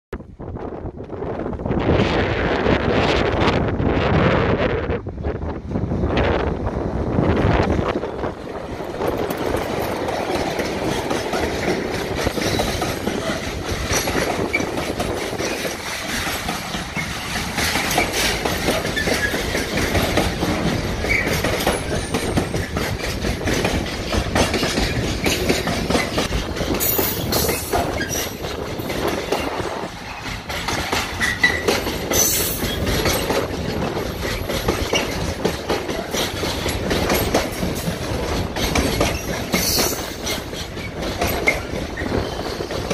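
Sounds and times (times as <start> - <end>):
diesel locomotive rumble: 0.2 - 42.9
train wheels clacking over rail joints: 7.4 - 42.9
high wheel squeals: 21.0 - 22.8, 26.8 - 28.4, 31.1 - 33.3.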